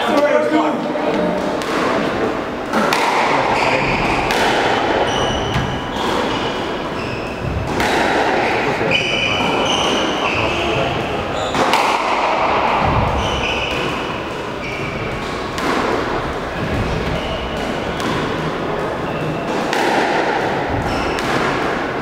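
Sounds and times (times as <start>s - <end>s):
squash ball cracks: 1.4s - 6.9s, 7.6s - 8.6s, 11.5s - 22.0s
shoes squeaking on wooden floor: 3.4s - 7.8s, 8.4s - 11.7s, 13.0s - 15.6s, 16.4s - 19.5s, 20.7s - 21.2s.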